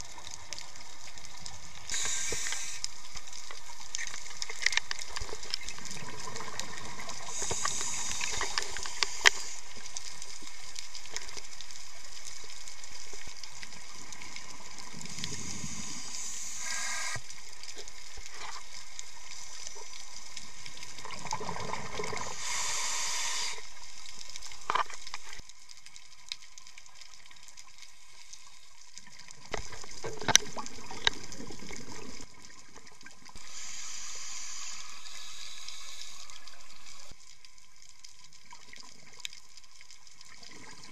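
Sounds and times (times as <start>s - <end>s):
steady underwater hiss: 0.0s - 40.9s
diver's bubbles gurgling: 21.0s - 22.4s, 29.4s - 33.2s.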